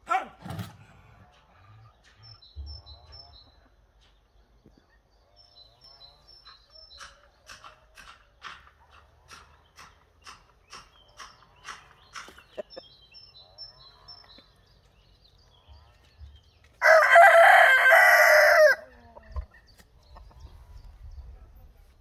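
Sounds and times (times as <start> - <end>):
rooster crowing: 16.8 - 18.9.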